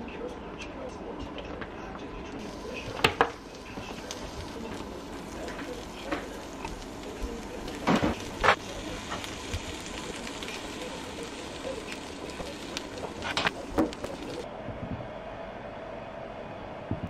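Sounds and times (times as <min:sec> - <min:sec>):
ham sizzling in oil: 0:02.4 - 0:14.5.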